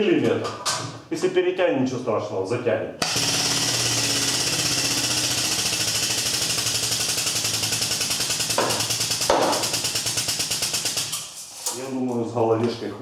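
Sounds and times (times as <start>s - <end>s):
pneumatic pump chattering and hissing: 3.0s - 11.4s.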